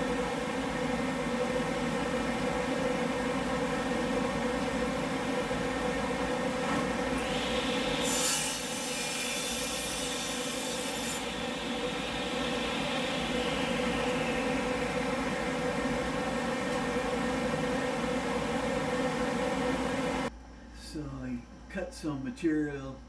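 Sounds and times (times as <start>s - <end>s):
table saw and dust collector hum: 0.0s - 20.3s
saw blade cutting wood: 7.2s - 14.7s.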